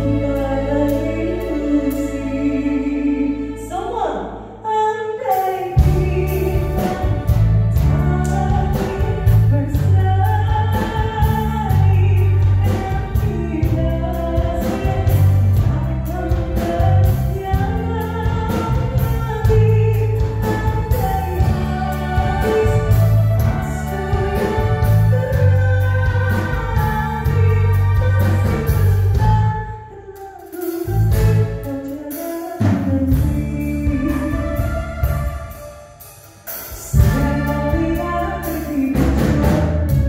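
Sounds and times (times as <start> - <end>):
live band playing: 5.2 - 40.0
electric bass line: 5.8 - 29.7.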